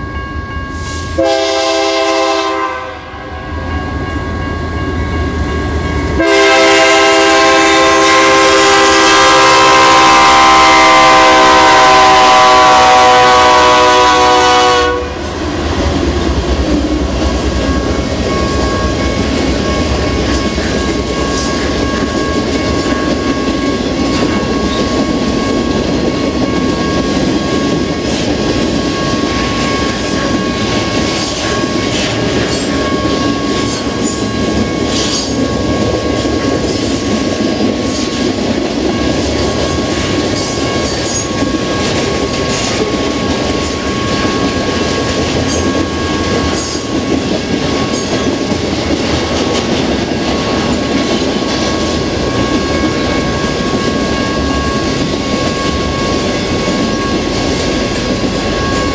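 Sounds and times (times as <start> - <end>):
train wheels rumbling on rail: 0.0 - 58.9
locomotive air horn chord: 0.8 - 3.4, 6.2 - 15.2.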